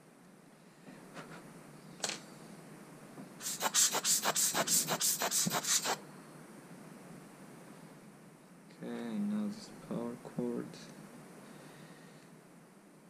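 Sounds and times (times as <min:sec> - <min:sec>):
rubber bulb blower puffing air: 0:03.4 - 0:06.0.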